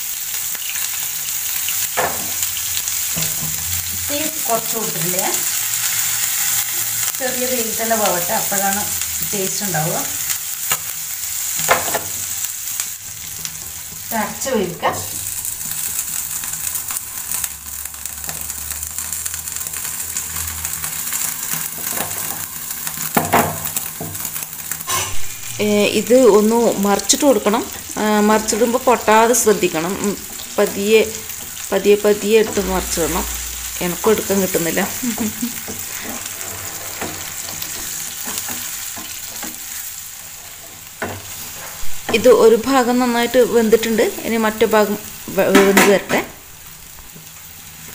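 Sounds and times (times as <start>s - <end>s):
fish frying in oil: 0.0s - 47.9s
metal spatula scraping pan: 24.8s - 25.8s, 35.6s - 39.7s.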